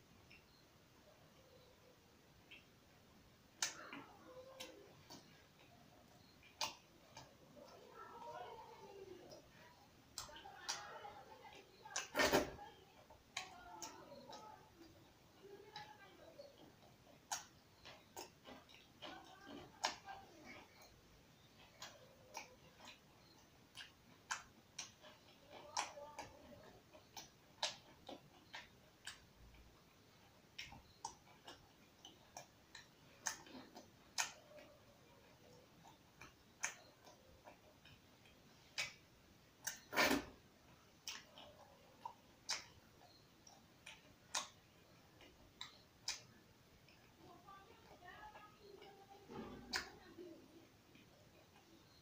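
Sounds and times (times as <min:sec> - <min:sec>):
wet mouth clicks and smacks chewing: 0:03.4 - 0:07.9, 0:13.1 - 0:47.2.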